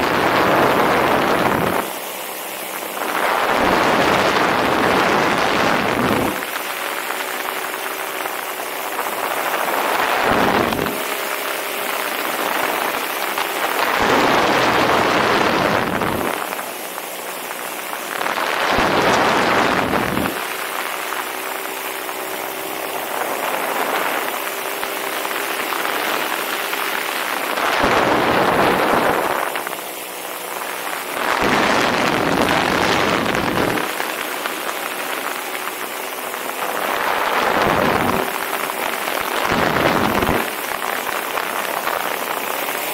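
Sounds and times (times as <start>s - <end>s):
two-stroke engine and propeller: 0.0s - 42.9s
wind rushing over microphone: 0.0s - 42.9s.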